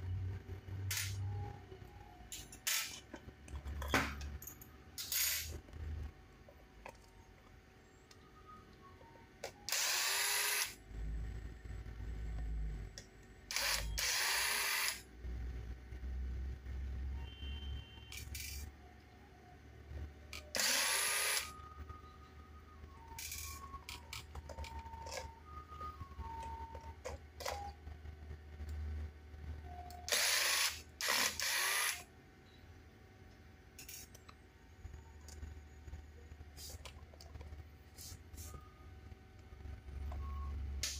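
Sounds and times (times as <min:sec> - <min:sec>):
electric screwdriver whirring: 0:09.7 - 0:10.7, 0:30.1 - 0:32.0.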